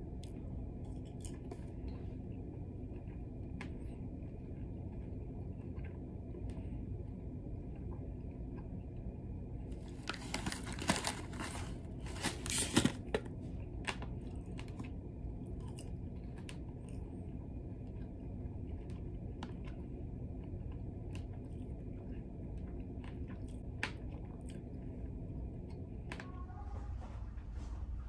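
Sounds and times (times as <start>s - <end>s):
soft chewing: 0.0s - 12.3s, 13.1s - 26.1s
plastic packet crinkling: 9.9s - 13.2s.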